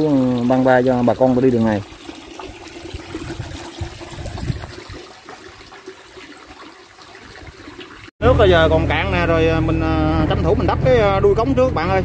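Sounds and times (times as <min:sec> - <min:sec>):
water trickling: 0:00.0 - 0:08.1.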